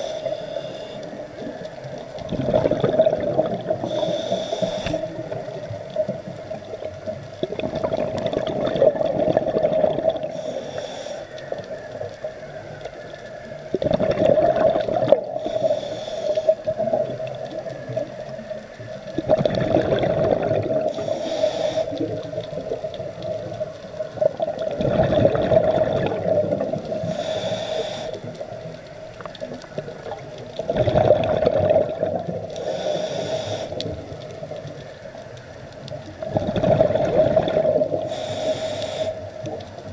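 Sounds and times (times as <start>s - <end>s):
regulator hiss: 0.0s - 1.6s, 3.8s - 6.2s, 10.2s - 11.9s, 15.3s - 16.9s, 20.8s - 22.4s, 26.9s - 28.8s, 32.5s - 34.1s, 38.0s - 39.8s
exhaled bubbles rushing underwater: 1.0s - 10.5s, 11.4s - 21.2s, 21.9s - 27.5s, 28.2s - 32.7s, 33.7s - 38.6s.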